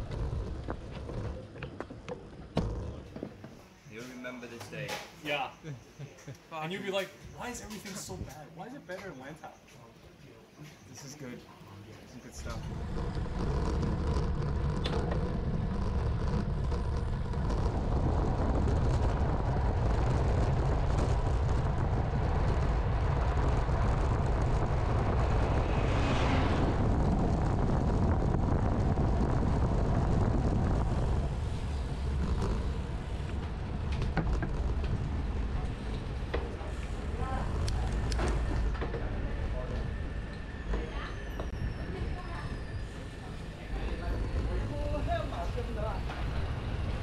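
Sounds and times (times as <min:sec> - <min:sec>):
wind buffeting microphone: 0:00.0 - 0:03.1, 0:12.4 - 0:47.0
bus passing: 0:12.4 - 0:47.0.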